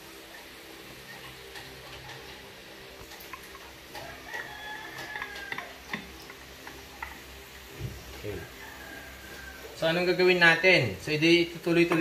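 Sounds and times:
rooster crowing: 3.9 - 6.1, 8.2 - 9.9.

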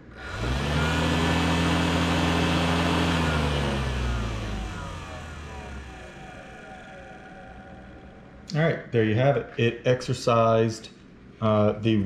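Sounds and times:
feeder motor spinning metal plate: 0.0 - 8.6.

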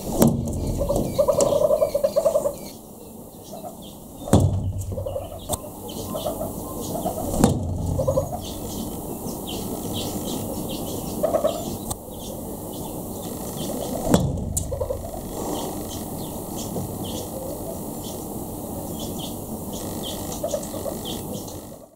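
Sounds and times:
sharp knocks: 0.0 - 2.5, 4.2 - 9.0, 13.6 - 16.1
hornbill clucking: 0.0 - 2.8, 3.4 - 21.9.

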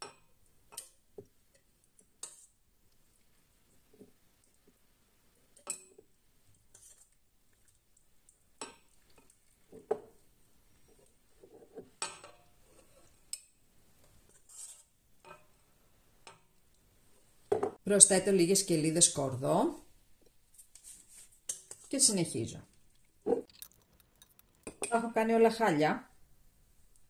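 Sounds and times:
pieces dropped into glass jar: 23.5 - 24.8.

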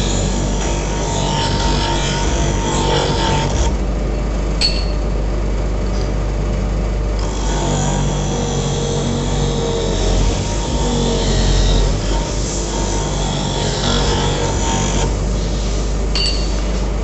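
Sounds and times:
machine running with low hum: 0.0 - 17.0
sharp metallic clink: 4.6 - 5.0, 16.2 - 16.6.

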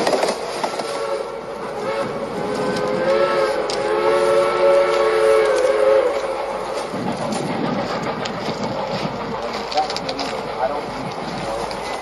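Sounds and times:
steam whistle long blast: 0.9 - 6.4.

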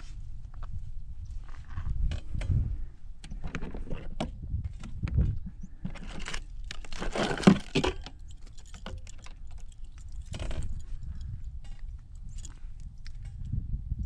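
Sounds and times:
hands rummaging through gear: 5.8 - 11.0.

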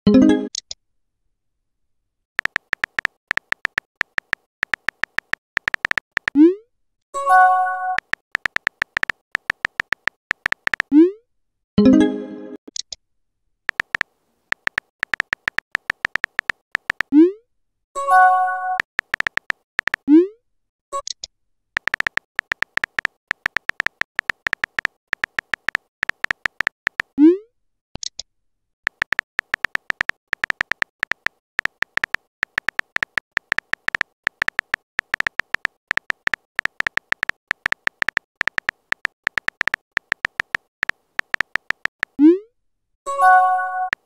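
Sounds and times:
phone keyboard taps: 2.4 - 6.4, 8.0 - 10.9, 13.7 - 17.1, 18.8 - 20.0, 21.8 - 27.2, 28.9 - 42.2.

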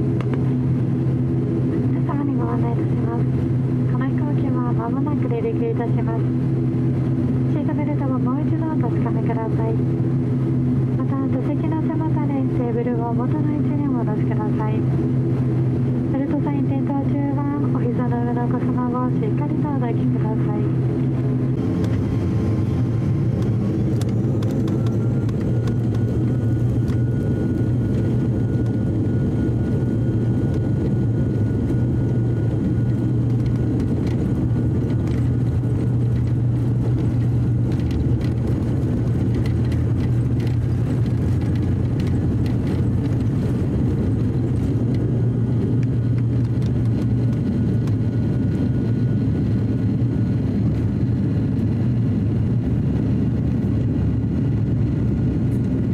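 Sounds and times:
propeller drone: 0.0 - 55.9
thin engine whine: 0.0 - 55.9.

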